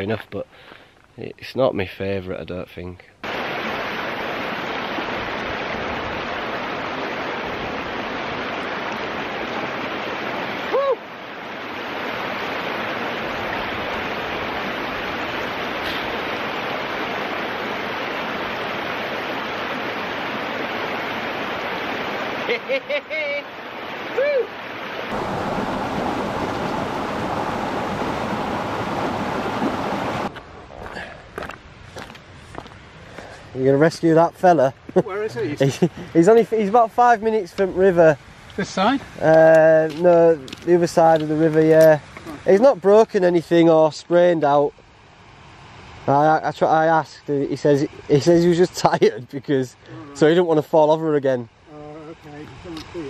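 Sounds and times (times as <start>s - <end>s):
waterfall rushing into pool: 3.2s - 30.4s
person crying out: 10.7s - 11.1s, 24.2s - 24.6s.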